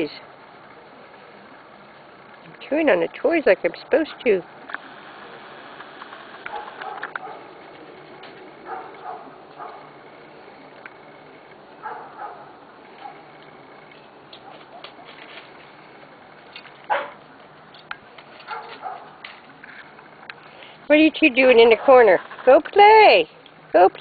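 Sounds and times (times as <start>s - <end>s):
puppy yelping: 8.6s - 9.9s, 16.9s - 17.2s.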